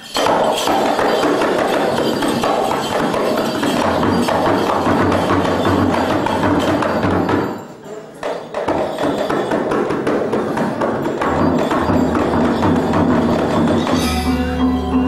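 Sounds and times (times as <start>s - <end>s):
hand drum: 0.0s - 7.6s, 8.2s - 15.0s
gamelan metallophones: 0.0s - 15.0s.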